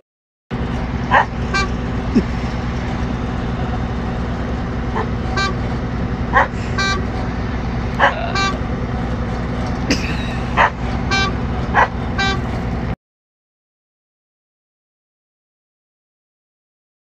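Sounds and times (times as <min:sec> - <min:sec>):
combine harvester engine rumble: 0:00.5 - 0:13.0
short high dog barks: 0:06.3 - 0:06.6, 0:08.0 - 0:08.6, 0:10.6 - 0:10.8, 0:11.7 - 0:12.0.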